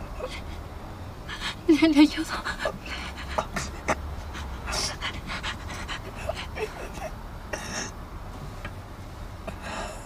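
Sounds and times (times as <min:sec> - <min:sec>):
woman panting: 0:01.3 - 0:01.7, 0:02.3 - 0:07.8.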